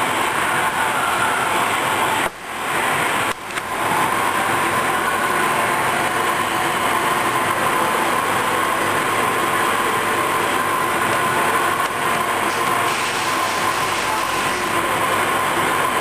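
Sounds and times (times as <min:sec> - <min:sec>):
machine running with whine: 0:00.0 - 0:16.0.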